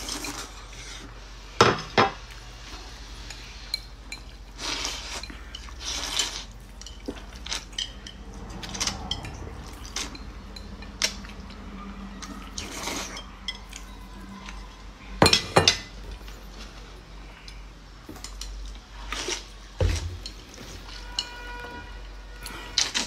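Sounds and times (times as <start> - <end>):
slurping: 2.6 - 10.3, 11.0 - 14.6.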